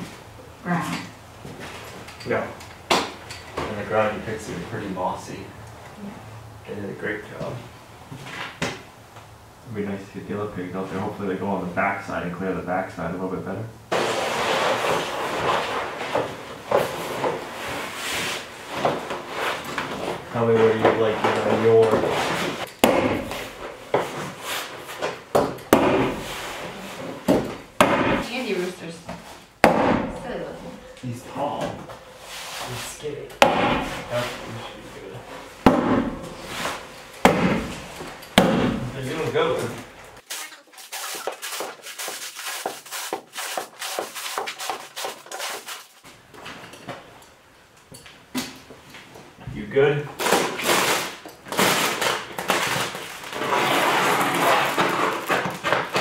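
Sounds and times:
hand tool striking wooden wall: 0:22.7 - 0:24.1, 0:25.3 - 0:26.2, 0:27.3 - 0:28.3, 0:29.6 - 0:30.2, 0:33.4 - 0:34.0, 0:35.6 - 0:36.4, 0:37.2 - 0:38.9
paper rustling: 0:39.6 - 0:46.1.

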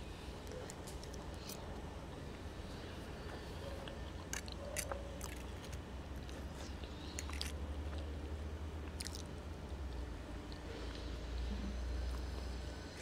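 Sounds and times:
low steady hum: 0:00.0 - 0:13.0
person chewing: 0:03.3 - 0:09.4.

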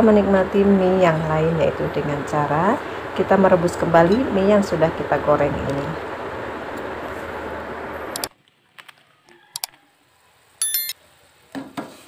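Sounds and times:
short high bell-like chime: 0:10.6 - 0:11.0.

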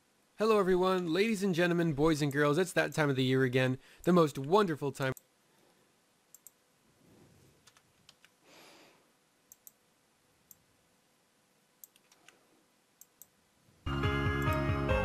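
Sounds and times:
computer mouse clicks: 0:06.3 - 0:06.6, 0:07.6 - 0:08.4, 0:09.5 - 0:09.8, 0:11.8 - 0:12.4, 0:13.0 - 0:13.4.

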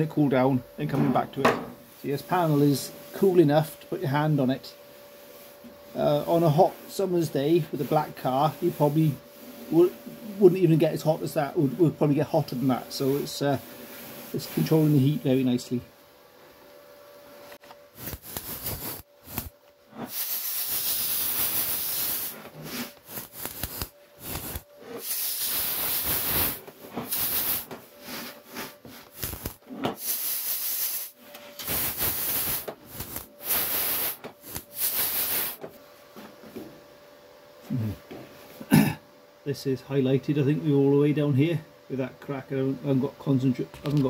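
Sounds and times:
air blow gun hissing: 0:01.4 - 0:15.5, 0:17.9 - 0:35.7.

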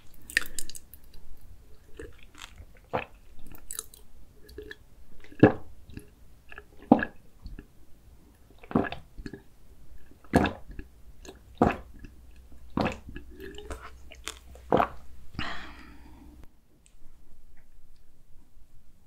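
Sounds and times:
person gulping a drink: 0:00.0 - 0:07.7, 0:08.5 - 0:16.3
breathy sound: 0:15.4 - 0:16.5.

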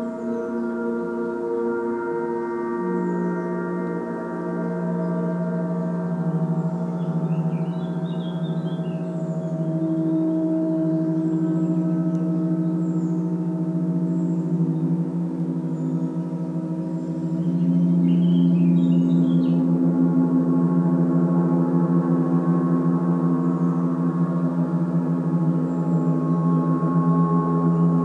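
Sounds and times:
gong resonating: 0:00.0 - 0:28.0
faint bird chirps: 0:06.3 - 0:19.8.

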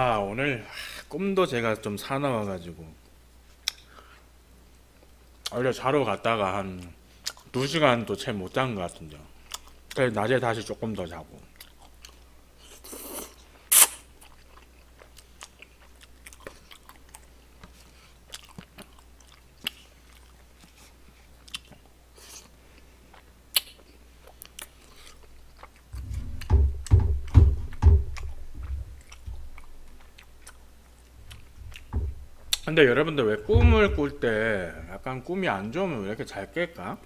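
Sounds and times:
wet mouth clicks: 0:03.6 - 0:03.9, 0:13.0 - 0:14.0, 0:23.1 - 0:26.0
chewing rice cakes: 0:06.7 - 0:07.8, 0:09.4 - 0:10.0, 0:11.4 - 0:26.0, 0:28.1 - 0:31.9
low thumps: 0:25.9 - 0:29.9, 0:31.2 - 0:35.1.

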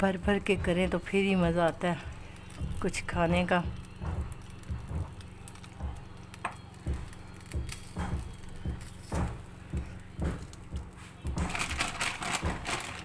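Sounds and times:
spatula knocking in frying pan: 0:00.0 - 0:13.0.

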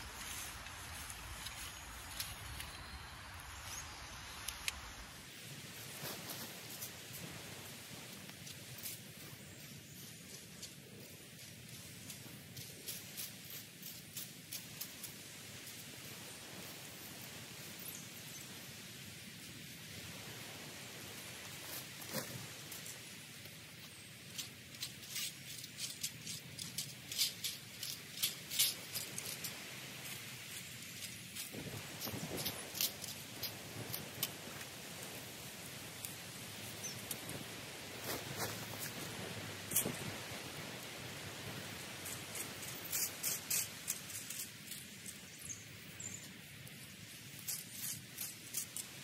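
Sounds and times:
dry plant material crackling: 0:00.0 - 0:03.8, 0:21.2 - 0:49.0
rustling stems and foliage: 0:00.0 - 0:49.0
wind rumble on microphone: 0:31.4 - 0:42.7.

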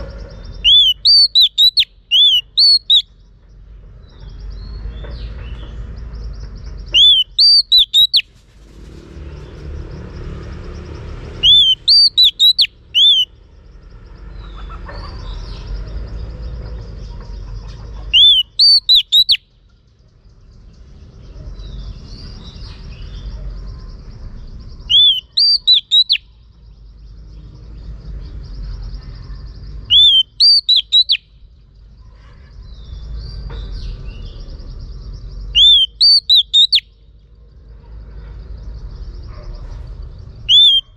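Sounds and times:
bird whistled call notes: 0:00.6 - 0:03.1, 0:06.9 - 0:08.3, 0:11.4 - 0:13.3, 0:18.1 - 0:19.5, 0:24.9 - 0:26.3, 0:29.8 - 0:31.3, 0:35.5 - 0:37.0, 0:40.4 - 0:40.9.

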